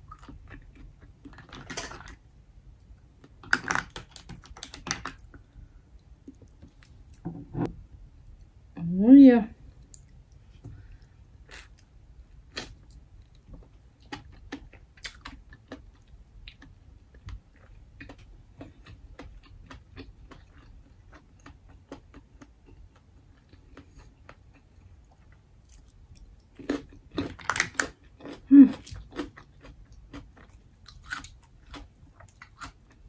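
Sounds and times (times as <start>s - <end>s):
chewing and mouth sounds: 11.5s - 33.0s.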